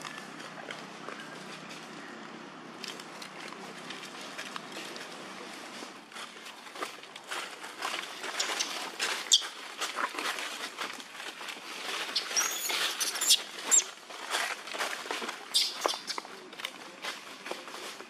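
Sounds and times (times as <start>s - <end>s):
dry leaves crackling: 0.0s - 18.0s
high-pitched squeaks: 12.0s - 13.9s, 15.5s - 16.2s.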